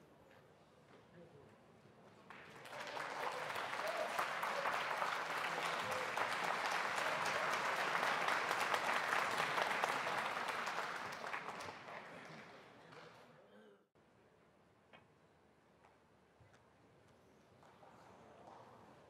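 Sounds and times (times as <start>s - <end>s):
audience applauding: 2.3s - 12.7s.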